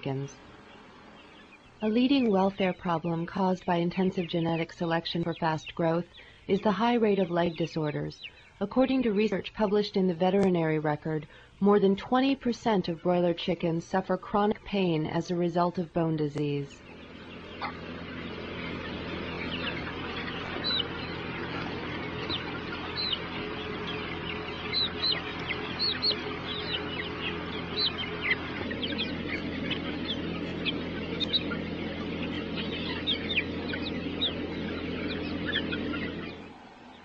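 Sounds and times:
chickens cheeping: 0.0 - 37.0
steady low hum: 16.4 - 37.0.

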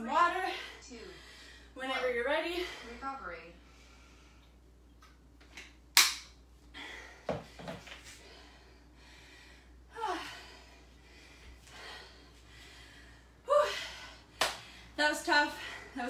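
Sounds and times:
woman breathing hard: 6.6 - 16.0.

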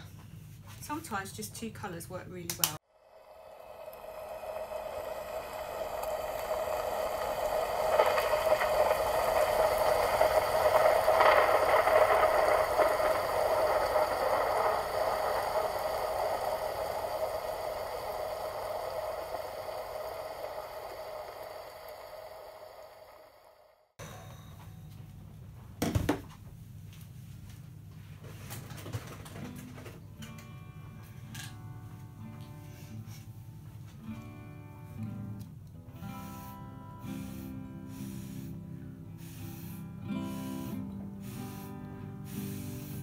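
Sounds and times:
hair dryer whining: 2.7 - 24.0.

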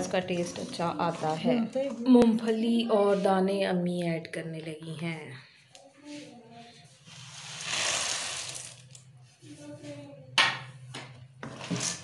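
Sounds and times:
chickpeas and peanuts pouring into pan: 7.2 - 9.0, 11.5 - 12.0.

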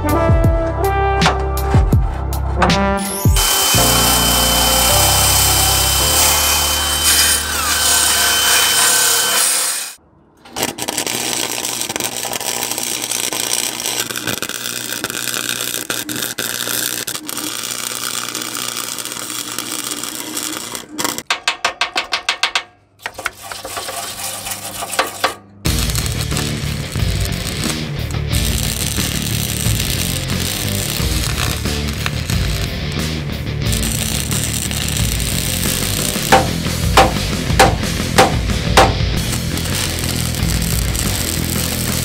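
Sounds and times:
drill spinning wire brush on steel: 3.3 - 21.3, 23.1 - 42.0
electric welding arc crackling: 3.3 - 21.3, 25.7 - 42.0.

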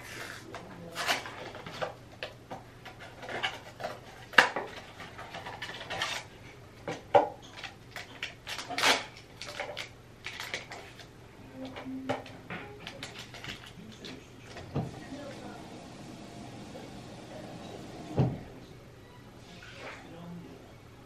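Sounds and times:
packaging crinkling and tearing: 7.5 - 11.1.

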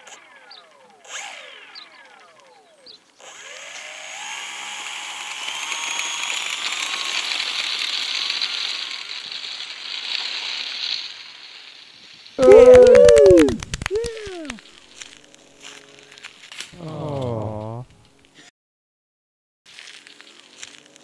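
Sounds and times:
rc airplane motor whirring: 0.0 - 16.7.

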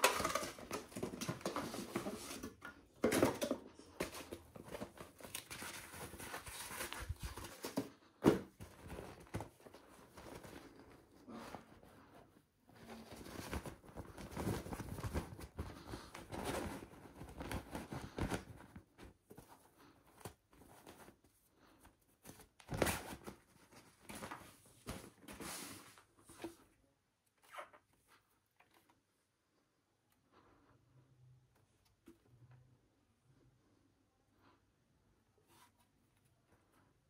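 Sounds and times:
rustling packaging and cardboard: 0.0 - 26.8.

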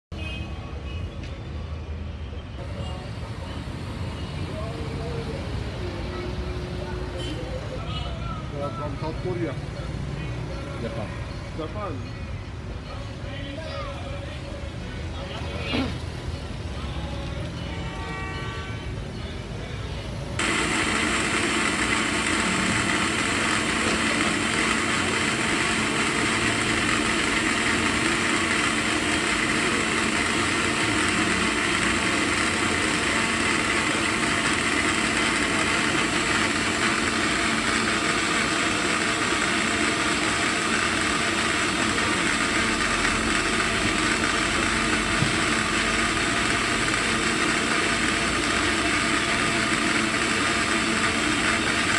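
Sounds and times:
motor droning: 20.4 - 51.9.

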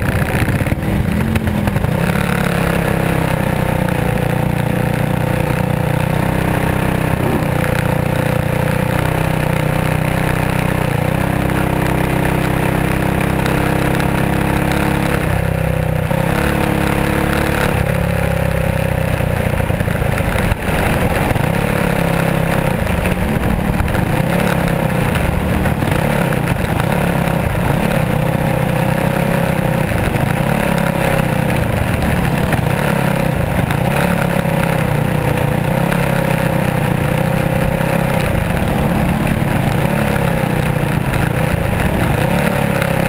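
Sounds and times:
race car engine at speed: 0.0 - 43.0.

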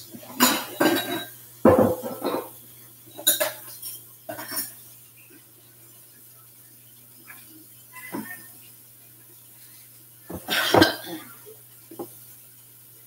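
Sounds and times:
faint steady hum: 0.0 - 13.0
dishes and utensils clattering: 0.2 - 4.8, 8.0 - 8.5, 10.3 - 11.4.

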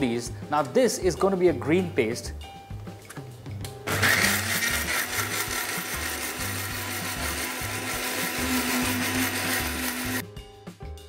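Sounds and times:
electric blender running: 3.9 - 10.2.

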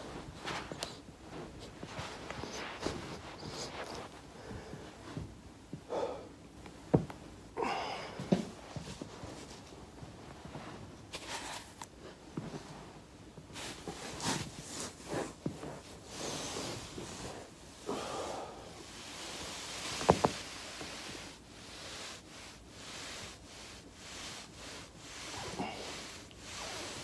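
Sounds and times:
foam roller rubbing on carpet: 0.0 - 5.3, 8.3 - 17.6, 18.8 - 27.0
fabric rustling: 0.0 - 5.8, 19.0 - 27.0
soft body knocks: 6.8 - 7.3.

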